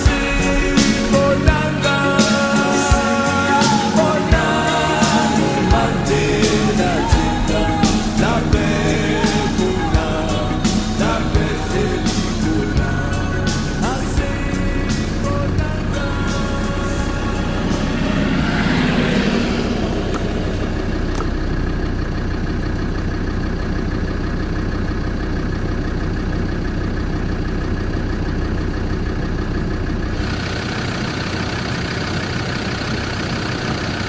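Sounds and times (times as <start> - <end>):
low hum: 0.0 - 25.0
vehicle engine droning: 0.0 - 34.0.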